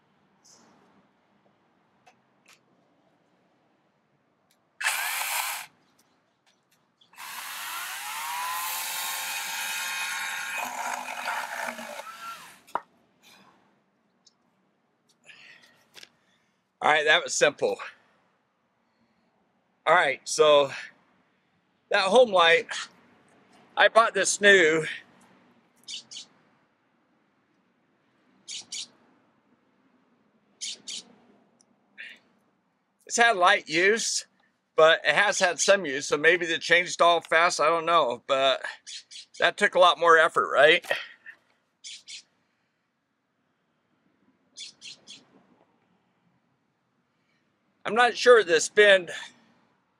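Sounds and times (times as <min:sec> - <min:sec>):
electric chainsaw motor whining: 0:04.8 - 0:05.7, 0:07.2 - 0:12.7
bird chirping: 0:25.8 - 0:26.4, 0:28.4 - 0:29.0, 0:30.6 - 0:31.1, 0:38.9 - 0:39.4, 0:41.8 - 0:42.3, 0:44.6 - 0:45.3.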